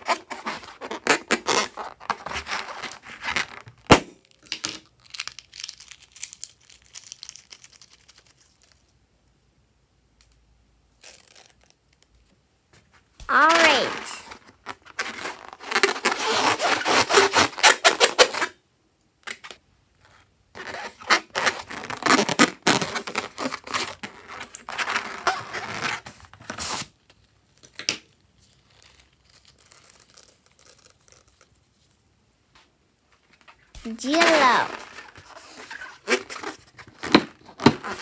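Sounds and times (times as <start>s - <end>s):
rubber balloon crackling and squeaking: 0.0s - 4.0s, 13.2s - 18.6s, 20.5s - 26.8s, 28.5s - 31.6s, 33.5s - 38.0s.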